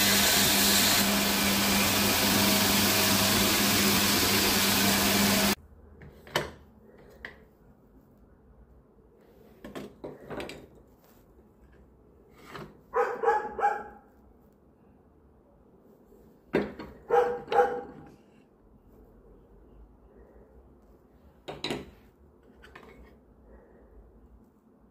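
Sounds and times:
dog barking: 12.9 - 14.1, 17.0 - 18.1.

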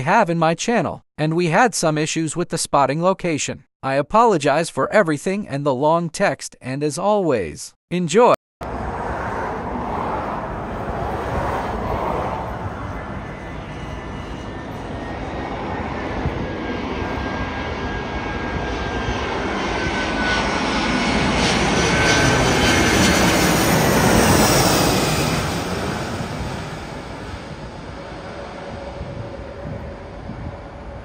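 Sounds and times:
jet airliner flying overhead: 8.6 - 31.0.

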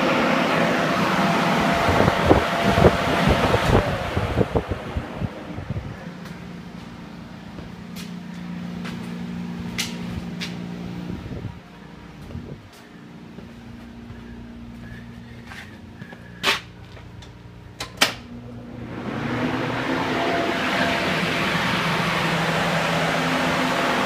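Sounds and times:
air mover fan humming: 0.0 - 24.0.

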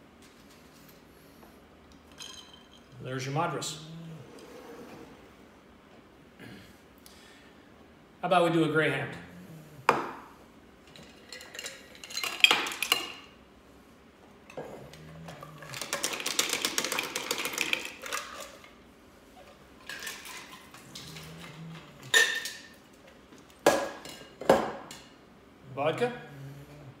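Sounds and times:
glassware clinking: 2.1 - 3.0, 22.0 - 22.8
ice cubes clattering into glass: 10.9 - 13.2, 15.5 - 18.6, 22.0 - 22.7.

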